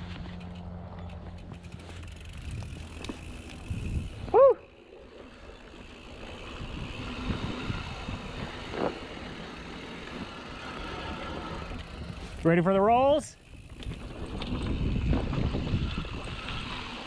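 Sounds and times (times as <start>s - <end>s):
bike tyre rumble and rattle: 0.0s - 17.0s
wind on microphone: 2.4s - 4.5s, 6.4s - 9.1s, 13.6s - 17.0s.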